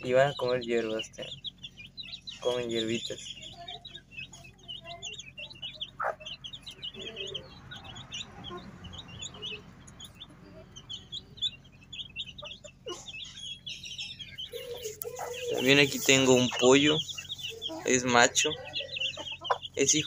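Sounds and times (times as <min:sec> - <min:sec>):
chicken clucking: 0:00.0 - 0:20.0
chicks peeping: 0:00.0 - 0:20.0.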